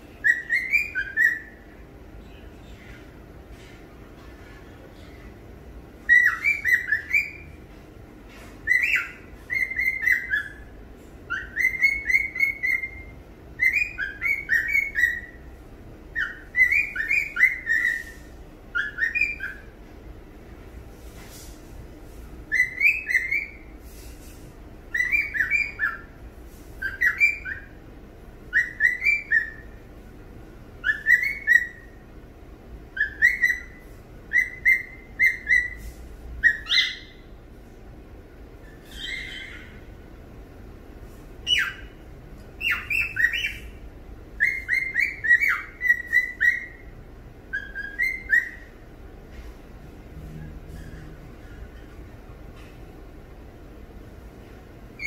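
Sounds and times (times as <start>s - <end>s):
cockatiel whistling: 0.2s - 1.6s, 6.0s - 7.5s, 8.6s - 10.6s, 11.3s - 15.4s, 16.1s - 19.7s, 22.5s - 23.7s, 24.9s - 26.1s, 26.8s - 27.8s, 28.5s - 29.8s, 30.8s - 32.0s, 33.0s - 37.3s, 38.6s - 39.8s, 41.4s - 41.9s, 42.6s - 43.7s, 44.4s - 46.9s, 47.5s - 48.7s.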